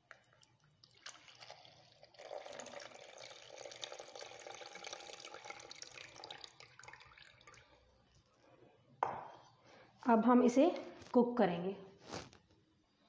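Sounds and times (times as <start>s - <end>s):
liquid trickling into jug: 0.2s - 8.0s.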